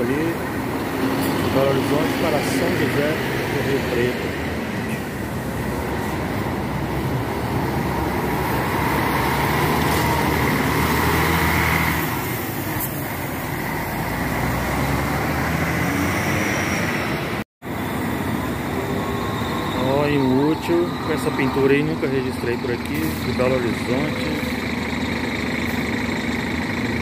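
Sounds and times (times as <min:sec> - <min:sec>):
coach diesel engine driving past: 0:00.0 - 0:27.0.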